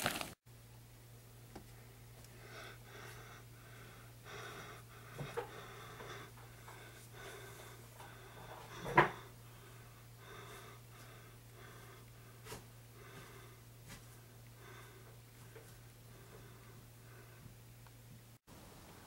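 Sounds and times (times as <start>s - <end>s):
steady low hum: 0.5s - 18.8s
heavy quick breathing: 2.3s - 17.5s.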